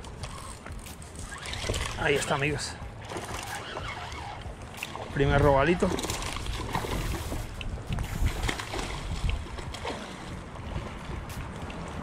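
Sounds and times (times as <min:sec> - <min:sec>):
wind buffeting microphone: 0:04.4 - 0:12.0.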